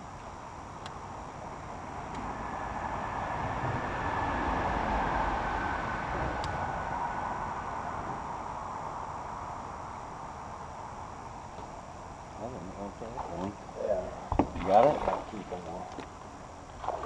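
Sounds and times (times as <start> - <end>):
faint whine: 0.0 - 17.0
vehicle tyres rushing over bridge: 2.3 - 8.4.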